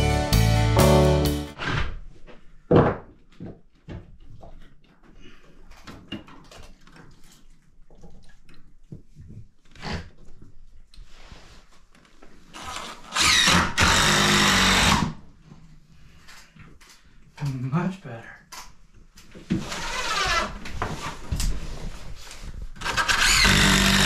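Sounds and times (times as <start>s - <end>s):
power drill running: 12.7s - 15.1s, 22.8s - 24.0s.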